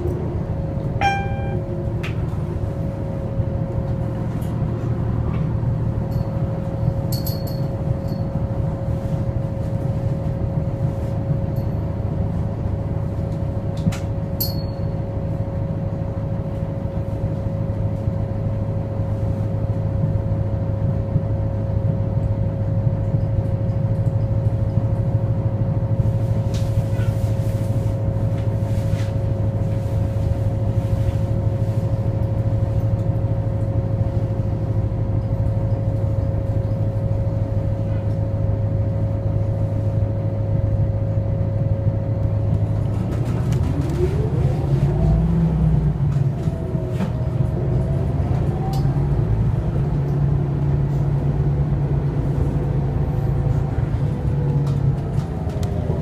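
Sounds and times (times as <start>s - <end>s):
bus drivetrain drone: 0.0s - 56.0s
high whine: 0.8s - 2.2s.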